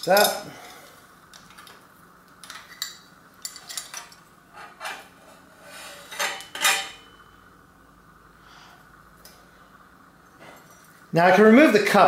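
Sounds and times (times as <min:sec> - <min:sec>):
metal bicycle parts clinking: 0:00.0 - 0:00.5, 0:02.4 - 0:05.0, 0:06.1 - 0:07.2.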